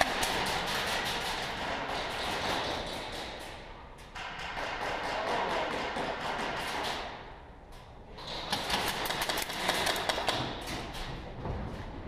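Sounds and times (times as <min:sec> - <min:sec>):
airsoft rifles firing bursts: 0:08.5 - 0:10.5.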